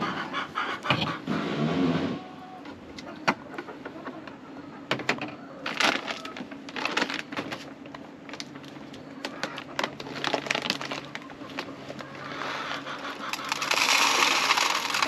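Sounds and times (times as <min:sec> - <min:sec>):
plastic bag crinkling: 0:05.6 - 0:12.0, 0:13.2 - 0:15.0.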